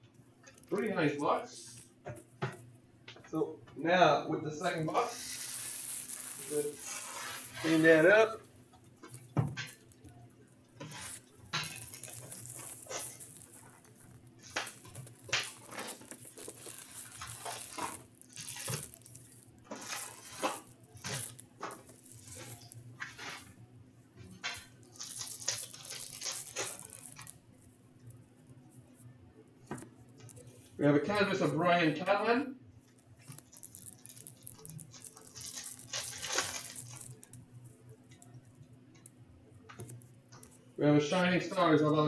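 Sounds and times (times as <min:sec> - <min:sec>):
foil packs rustling: 0:04.6 - 0:08.4, 0:10.8 - 0:23.5, 0:24.3 - 0:27.4, 0:33.2 - 0:37.4
shrink wrap crinkling and tearing: 0:04.6 - 0:10.2, 0:10.8 - 0:23.6, 0:24.2 - 0:27.4, 0:30.2 - 0:31.6, 0:32.9 - 0:39.1, 0:39.7 - 0:40.6
foil pack tearing open: 0:05.0 - 0:08.2, 0:10.8 - 0:23.5, 0:24.4 - 0:27.4, 0:33.2 - 0:37.4.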